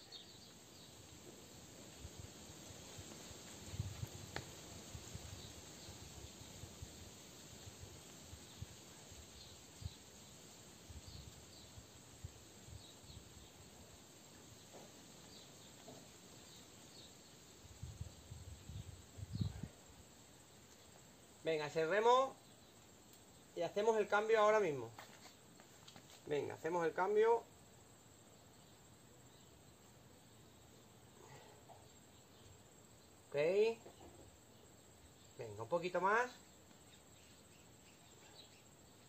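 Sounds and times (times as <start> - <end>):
insects chirping: 0.0 - 39.0.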